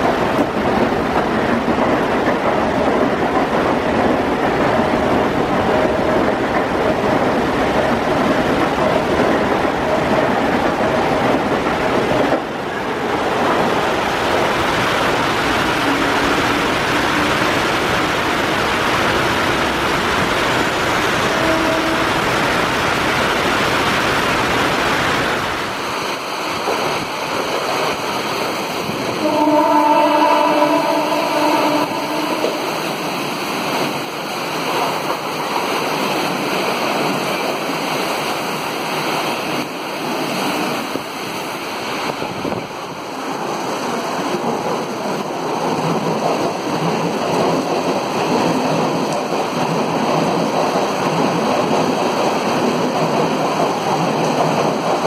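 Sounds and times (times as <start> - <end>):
electric train passing: 0.0 - 55.0
heavy rain pouring: 0.0 - 55.0
multi-tone train horn: 15.8 - 17.7, 21.2 - 22.4, 29.2 - 32.9.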